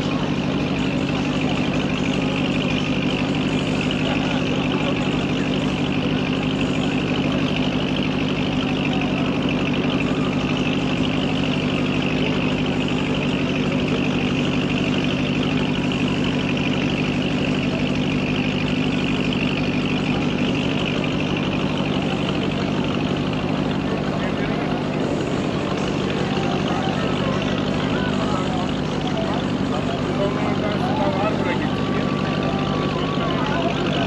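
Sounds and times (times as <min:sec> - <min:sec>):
car engine and road noise: 0:00.0 - 0:34.0.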